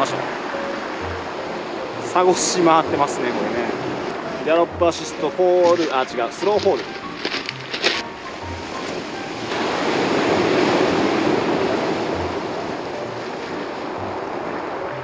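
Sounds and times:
surf breaking on pebble beach: 0:08.4 - 0:15.0.

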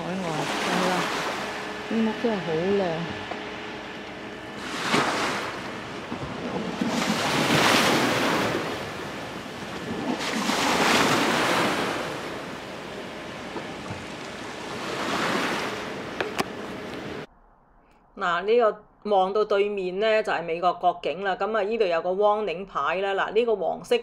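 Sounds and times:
waves washing against seawall: 0:00.0 - 0:03.1, 0:04.5 - 0:17.3.

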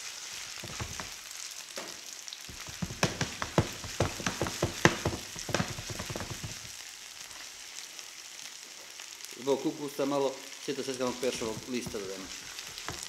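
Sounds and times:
meat sizzling in a frying pan: 0:00.0 - 0:13.0
sharp pops and crackles: 0:00.4 - 0:07.5, 0:11.0 - 0:13.0.

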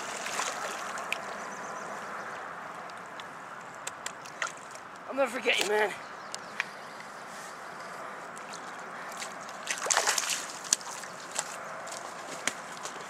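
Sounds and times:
river water splashing: 0:00.0 - 0:03.2, 0:04.1 - 0:05.8, 0:08.3 - 0:13.0.

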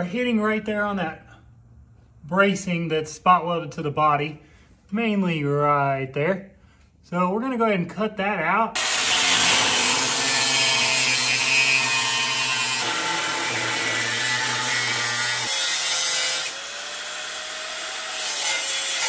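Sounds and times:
power tool cutting steel: 0:08.8 - 0:19.0.

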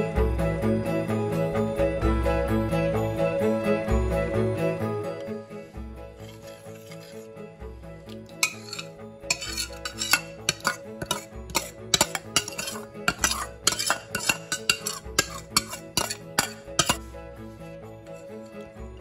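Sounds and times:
background music: 0:00.0 - 0:19.0
metal spoon scraping a bowl: 0:06.2 - 0:07.3, 0:08.1 - 0:17.1, 0:18.0 - 0:19.0.

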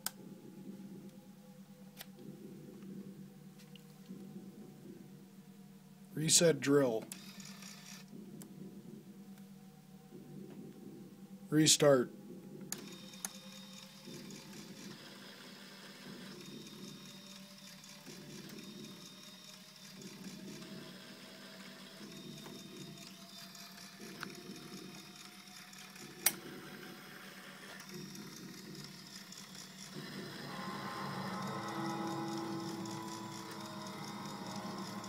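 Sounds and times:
small electric motors whirring: 0:07.1 - 0:08.1, 0:12.7 - 0:35.0.

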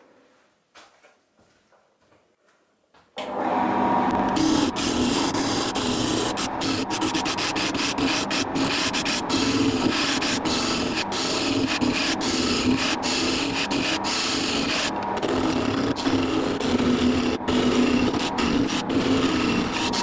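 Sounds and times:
lathe motor hum: 0:03.2 - 0:20.0
lathe tool cutting wood hiss: 0:04.3 - 0:14.9.

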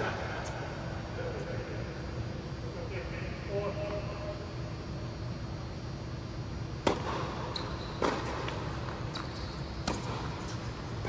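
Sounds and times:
steady low hum: 0:00.0 - 0:11.0
tennis ball hit and bouncing: 0:06.8 - 0:07.3, 0:08.0 - 0:09.0, 0:09.8 - 0:10.6
shoe squeaks on court: 0:07.4 - 0:10.8.

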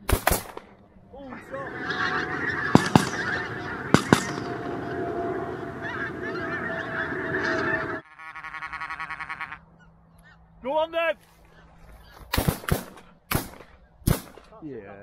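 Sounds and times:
shotgun shots: 0:00.0 - 0:00.7, 0:02.6 - 0:04.9, 0:12.3 - 0:14.5
geese honking: 0:01.2 - 0:10.4.

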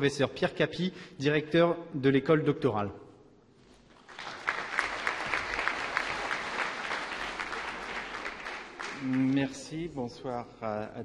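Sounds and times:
audience applauding: 0:03.9 - 0:09.6.

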